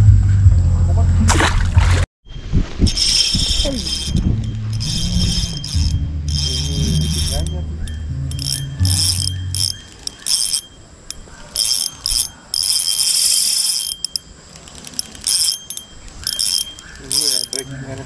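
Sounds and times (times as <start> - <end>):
low hum: 0.0 - 18.0
fishing reel drag clicking: 2.9 - 18.0.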